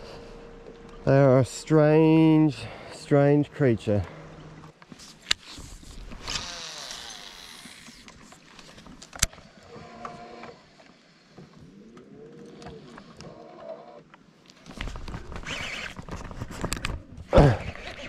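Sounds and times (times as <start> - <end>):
fishing reel gears whirring: 5.4 - 8.4.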